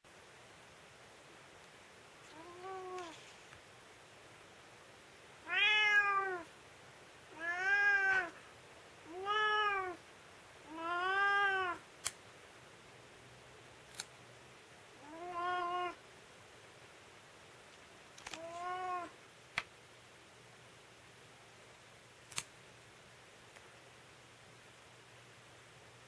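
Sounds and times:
cat meowing: 0:02.3 - 0:03.2, 0:05.4 - 0:06.5, 0:07.3 - 0:08.4, 0:09.1 - 0:10.0, 0:10.6 - 0:11.8, 0:15.0 - 0:16.0, 0:18.3 - 0:19.2
nail clipper clicks: 0:12.0 - 0:12.2, 0:13.9 - 0:14.1, 0:22.3 - 0:22.5.

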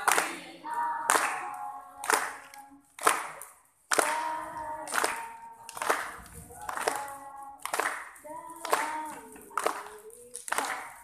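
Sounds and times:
voices singing held notes: 0:00.0 - 0:02.9
group clapping slowly: 0:00.0 - 0:11.0.

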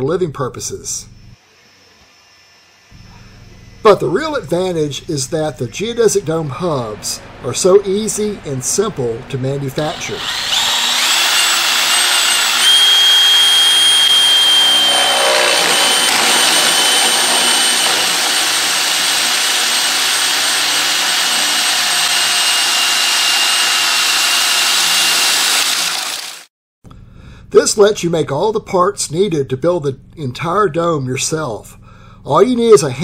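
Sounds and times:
drill hole saw cutting pipe: 0:09.8 - 0:26.5.

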